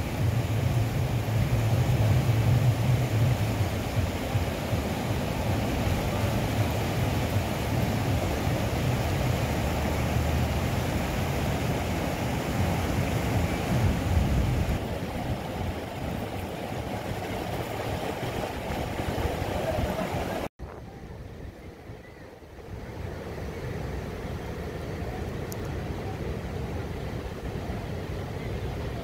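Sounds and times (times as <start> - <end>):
river rapids rushing over rocks: 0.0 - 20.5.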